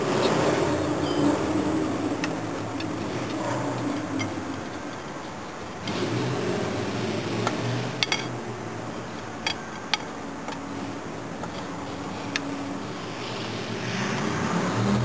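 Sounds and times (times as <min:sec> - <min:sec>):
steady low hum: 0:00.0 - 0:14.8
screwdriver clicking on metal screws: 0:02.1 - 0:06.0, 0:07.4 - 0:08.3, 0:09.1 - 0:10.7, 0:11.4 - 0:12.5.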